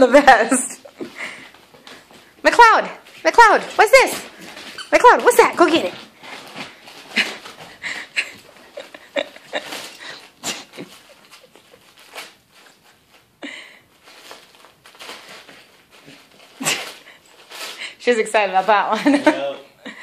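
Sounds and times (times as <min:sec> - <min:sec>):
wrapping paper crinkling and ripping: 0:05.9 - 0:07.8, 0:08.6 - 0:13.3, 0:14.0 - 0:18.8.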